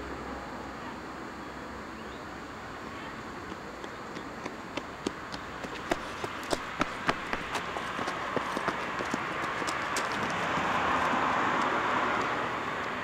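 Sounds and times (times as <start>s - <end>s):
running footsteps on pavement: 3.4s - 13.0s.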